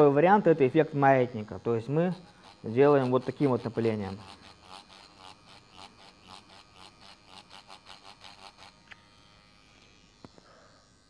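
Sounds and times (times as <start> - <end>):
tattoo machine buzzing: 0.0 - 11.0
small clicks: 8.3 - 10.5.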